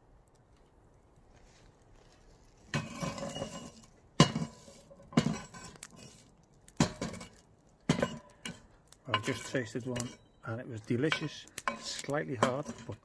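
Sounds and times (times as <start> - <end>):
chestnuts rattling in metal pan: 6.8 - 13.0.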